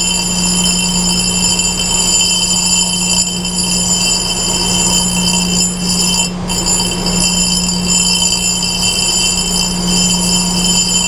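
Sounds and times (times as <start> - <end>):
grinder spindle humming: 0.0 - 11.0
high-pitched ringing whine: 0.0 - 11.0.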